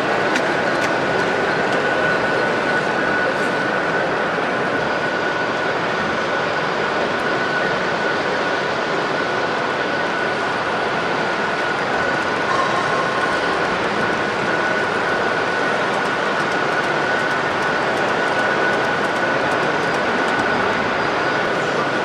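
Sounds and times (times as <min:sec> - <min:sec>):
model train running: 0:00.0 - 0:22.0
thin high whine: 0:00.0 - 0:22.0.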